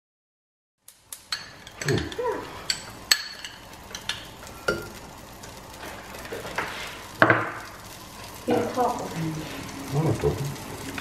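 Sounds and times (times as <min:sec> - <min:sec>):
butter sizzling in a pan: 0:00.8 - 0:11.0.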